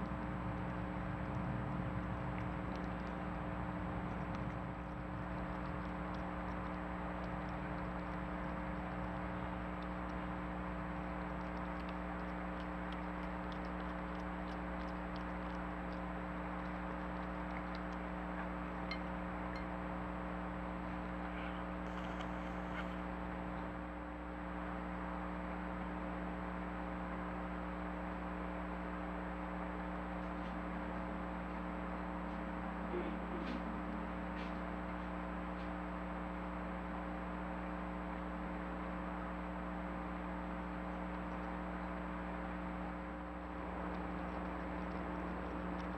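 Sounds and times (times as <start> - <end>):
faint ticks: 0.0 - 19.8, 40.5 - 41.8, 43.4 - 45.9
microphone hiss and hum: 0.0 - 45.9.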